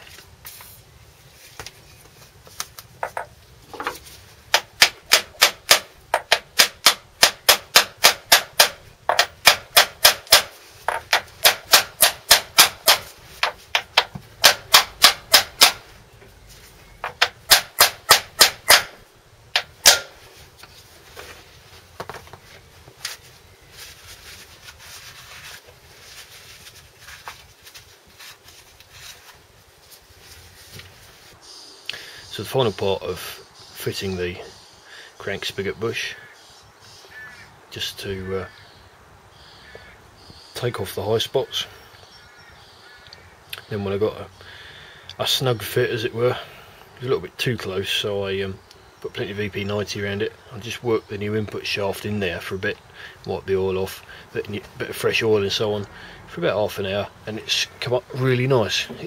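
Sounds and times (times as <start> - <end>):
hammer striking metal tube: 17.2 - 19.0, 19.6 - 20.1.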